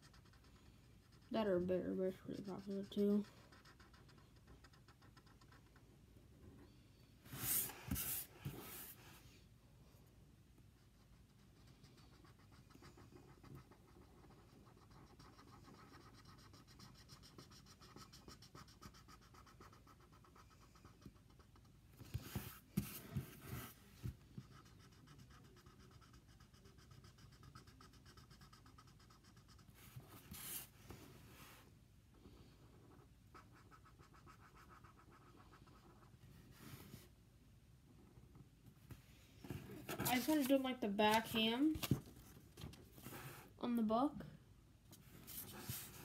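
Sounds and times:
marker rubbing on paper: 0.0 - 5.7, 7.3 - 9.0, 10.9 - 21.4, 33.3 - 37.0.

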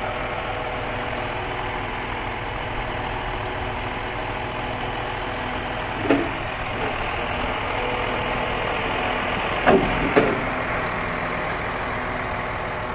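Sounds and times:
diesel engine idling: 0.0 - 12.9
crane hydraulics: 5.0 - 12.9
sharp metallic clunks: 6.0 - 7.0, 9.6 - 10.6.

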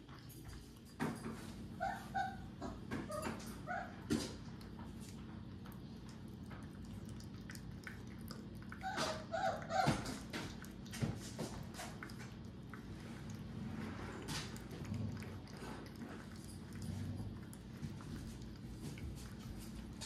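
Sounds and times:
puppy lapping food: 0.0 - 20.0
puppy whimpering: 1.8 - 4.0, 8.7 - 10.2.

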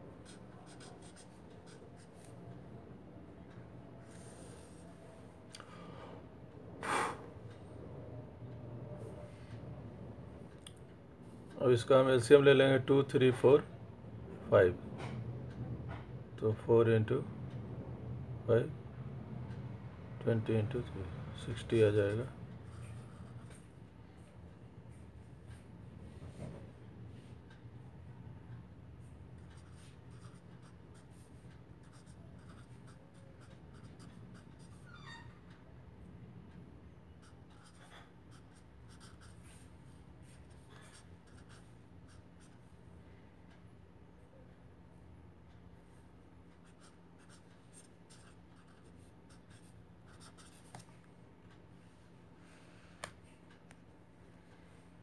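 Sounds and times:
low steady hum: 0.0 - 55.0
marker scratching on paper: 0.2 - 2.3, 22.1 - 23.7, 29.5 - 35.0, 37.2 - 42.7, 46.6 - 50.9.

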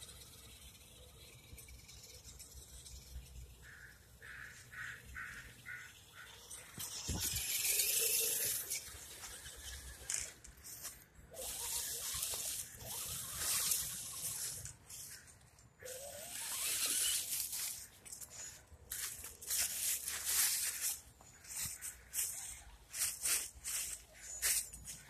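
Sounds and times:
dry leaves crunching: 10.6 - 25.0.

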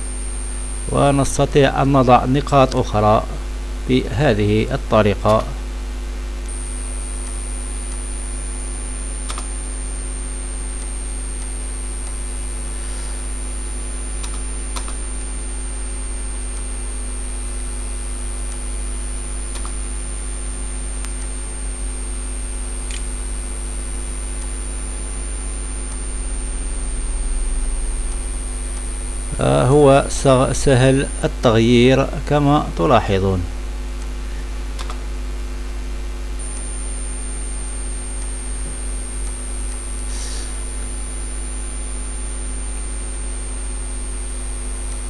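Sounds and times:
electrical mains hum: 0.0 - 45.0
high whine: 0.0 - 45.0
computer mouse clicks: 19.5 - 19.8, 34.8 - 35.0.

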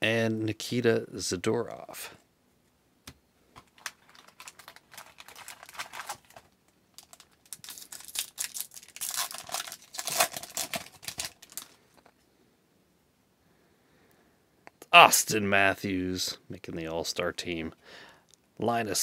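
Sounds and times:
foil wrapper tearing and crinkling: 3.6 - 11.8.

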